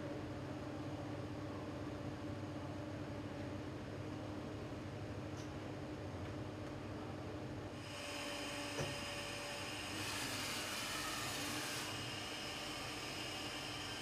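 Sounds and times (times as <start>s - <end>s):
grinding wheel humming and hissing: 7.8s - 14.0s.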